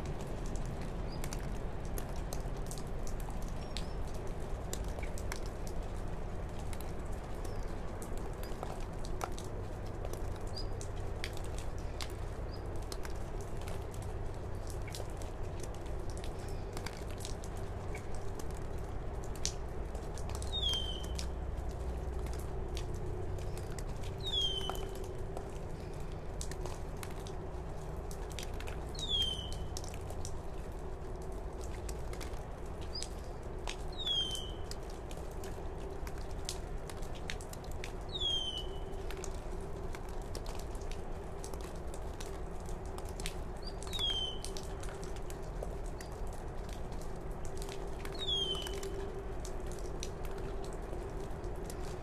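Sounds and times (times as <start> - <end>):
faint bird chirps: 24.2 - 25.0.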